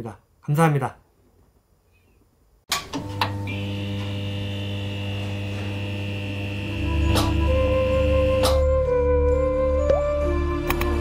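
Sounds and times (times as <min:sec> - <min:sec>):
electrical hum: 0:02.7 - 0:08.6.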